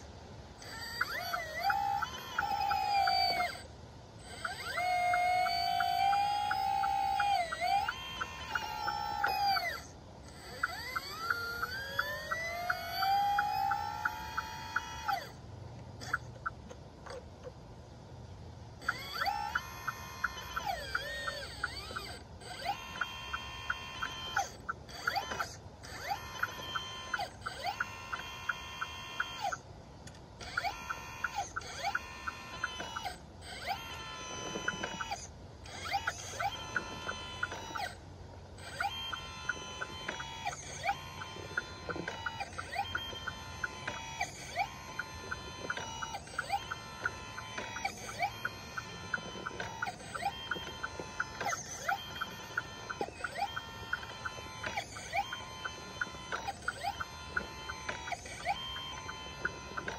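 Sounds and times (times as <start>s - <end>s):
electric motor whining: 0.0s - 17.5s, 18.7s - 59.9s
fast regular ticking: 0.0s - 17.5s, 18.7s - 59.9s.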